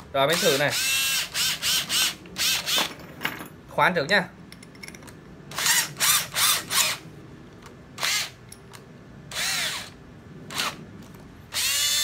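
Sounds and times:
cordless drill motor spinning: 0.3s - 2.8s, 5.5s - 7.0s, 8.0s - 8.4s, 9.3s - 10.8s, 11.5s - 12.0s.

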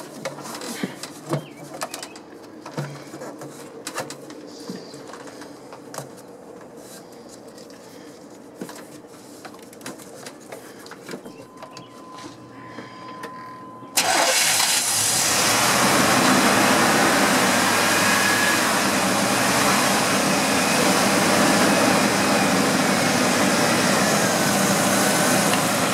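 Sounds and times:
truck engine starting and running: 11.6s - 25.9s.

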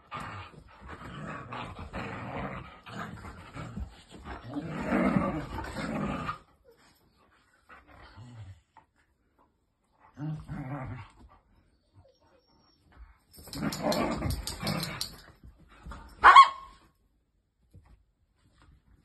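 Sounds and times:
dogs growling: 0.0s - 6.5s, 13.4s - 15.2s
dog barking: 16.2s - 16.7s.

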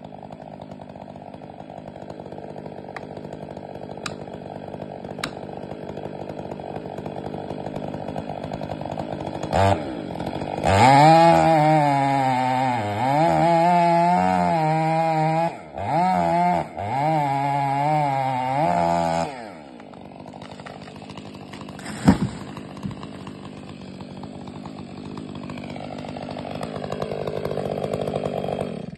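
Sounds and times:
chainsaw cutting wood: 0.0s - 28.9s
tree trunk hitting ground: 19.8s - 24.9s.

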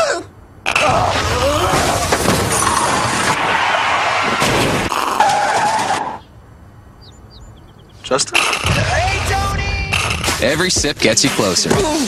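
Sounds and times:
loud scraping on asphalt: 2.4s - 6.2s.

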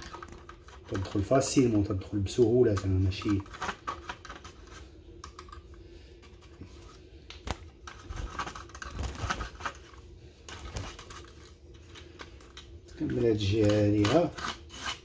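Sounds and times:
toothbrush scratching on wire: 13.0s - 15.0s.

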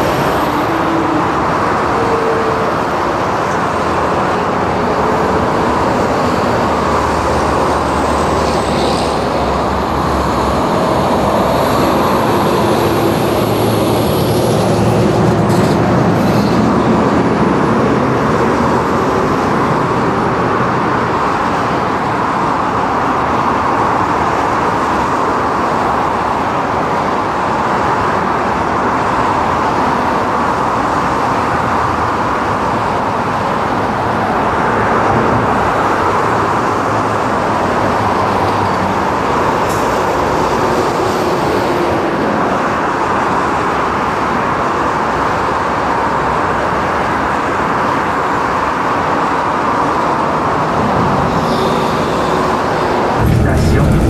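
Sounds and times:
excavators and dump truck working: 0.0s - 18.7s, 50.5s - 54.0s
road traffic din: 0.0s - 22.5s, 49.4s - 54.0s.

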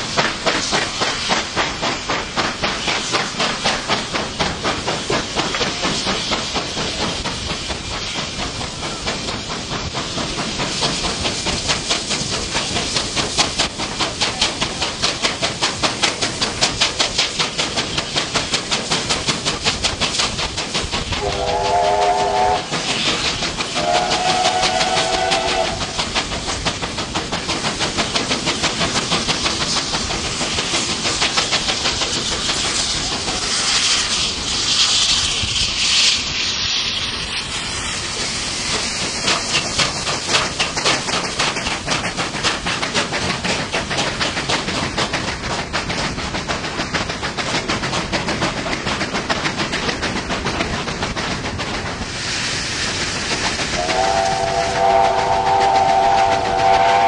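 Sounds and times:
loud steam hiss: 0.0s - 57.0s
steam locomotive exhaust chuffs: 0.0s - 57.0s
steam whistle chord: 21.2s - 22.7s, 53.8s - 57.0s.

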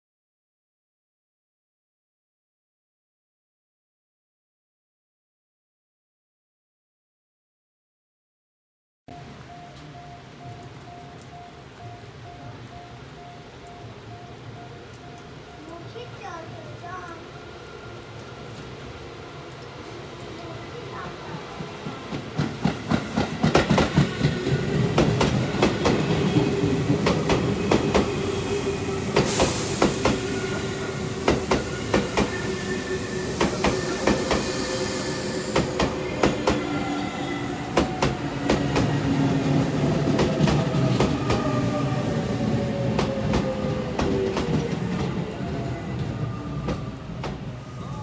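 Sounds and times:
train rumble: 9.1s - 48.0s
train wheels clicking over rail joints: 21.8s - 28.4s, 29.0s - 30.5s, 31.1s - 34.5s
electric train motor braking: 22.5s - 48.0s.

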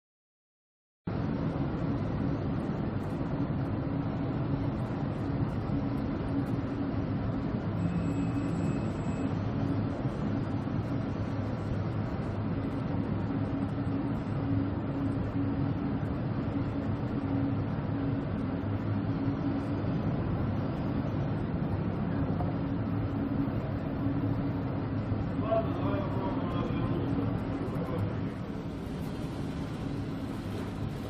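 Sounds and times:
heavy wind: 1.1s - 31.0s
low machinery hum: 1.1s - 31.0s.

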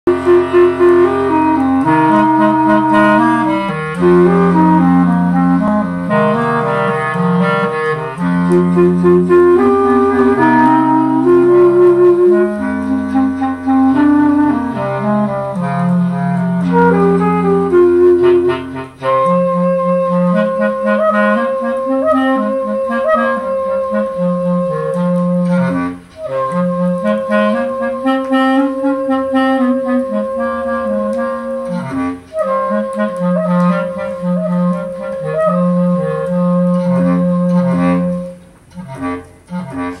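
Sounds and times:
jazz clarinet on vinyl: 0.1s - 40.0s.

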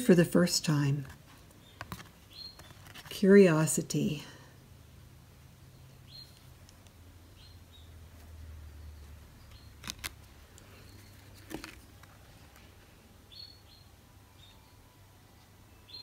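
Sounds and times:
cards clicking and tapping: 9.8s - 12.2s.

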